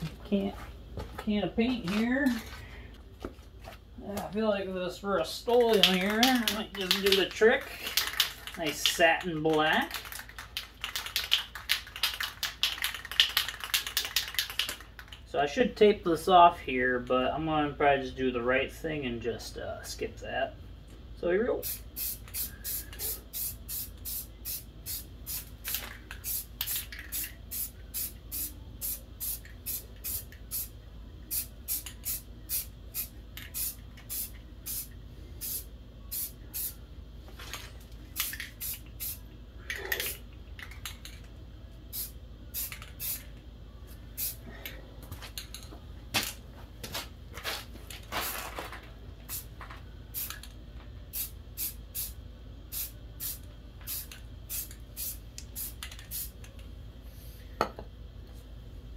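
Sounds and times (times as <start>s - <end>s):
spray paint can hissing puffs: 21.6s - 30.7s, 31.3s - 36.8s, 38.2s - 39.2s, 41.9s - 43.3s, 44.2s - 44.4s, 51.1s - 56.4s.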